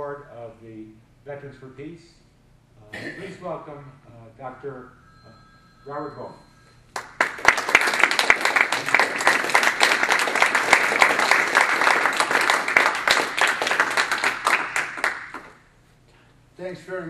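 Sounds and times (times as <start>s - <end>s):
audience applauding: 6.9s - 15.6s.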